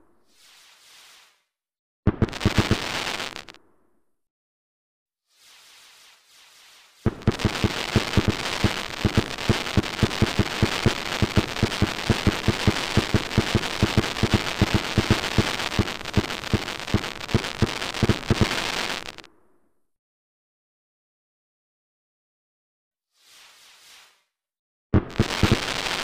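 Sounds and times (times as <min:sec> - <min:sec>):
crackling hiss of fireworks: 0:00.2 - 0:01.5, 0:02.1 - 0:03.6, 0:05.3 - 0:19.3, 0:23.2 - 0:24.3, 0:25.0 - 0:26.0
fireworks rapid bangs: 0:02.1 - 0:03.6, 0:07.0 - 0:19.2, 0:25.0 - 0:26.0.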